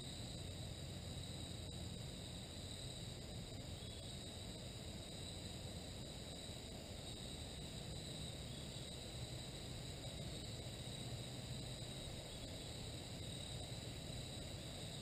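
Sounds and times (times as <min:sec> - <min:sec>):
crickets and insects trilling: 0:00.0 - 0:15.0.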